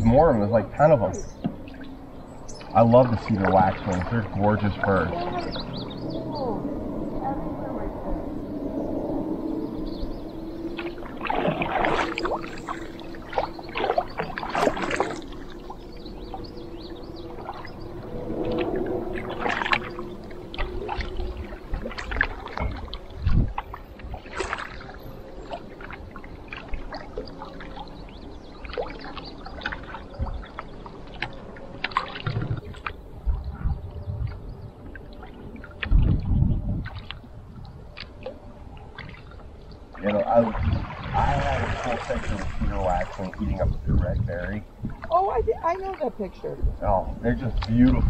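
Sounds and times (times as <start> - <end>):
paddle splashing in water: 2.8 - 5.8, 10.8 - 16.6, 18.4 - 33.0, 36.8 - 43.5
water dripping off paddle: 10.7 - 16.5, 18.4 - 33.0.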